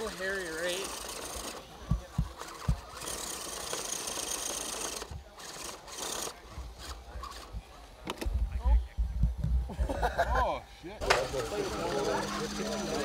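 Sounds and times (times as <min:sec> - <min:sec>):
toy truck motor whining: 0:00.0 - 0:07.6, 0:11.0 - 0:13.0.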